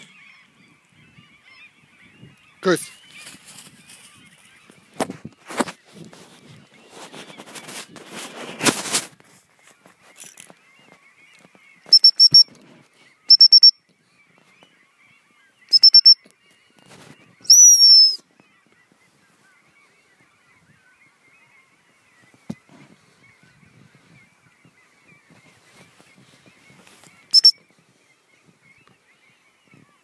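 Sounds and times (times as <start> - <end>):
high whistle pips: 11.9 - 12.5, 13.3 - 13.8, 15.7 - 16.2, 17.5 - 18.2, 27.3 - 27.6.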